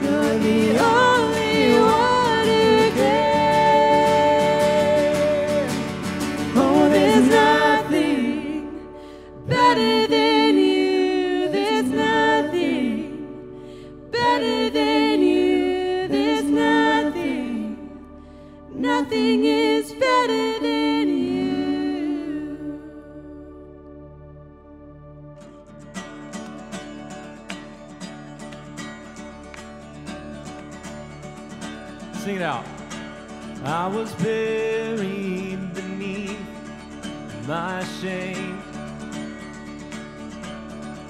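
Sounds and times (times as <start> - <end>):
strummed acoustic guitars: 0.0 - 22.4, 25.4 - 41.0
voices singing together: 0.0 - 23.5.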